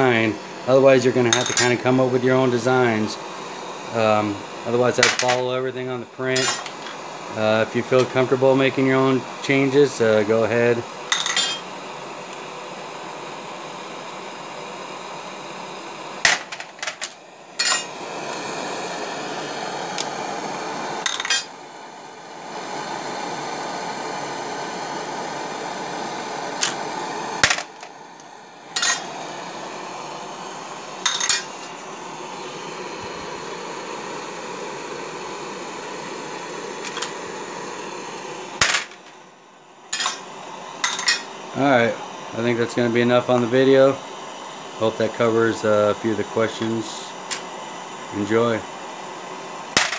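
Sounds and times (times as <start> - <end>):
gas torch flame hissing: 0.0 - 49.9
metal cases clinking into pan: 11.1 - 11.6, 28.8 - 29.1, 31.1 - 31.5, 40.0 - 40.2, 40.8 - 41.2.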